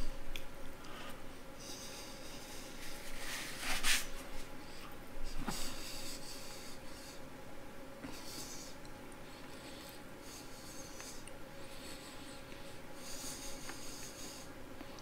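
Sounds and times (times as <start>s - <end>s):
paper napkin rustling: 2.7s - 4.5s.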